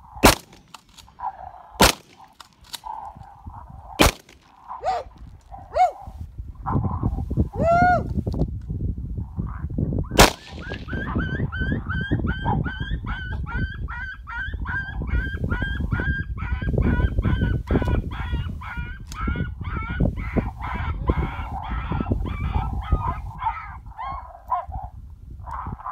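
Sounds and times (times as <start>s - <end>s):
sharp crack: 0.2s - 1.2s, 1.8s - 3.0s, 4.0s - 5.0s, 10.2s - 11.1s
electronic yelping calls: 4.7s - 5.1s.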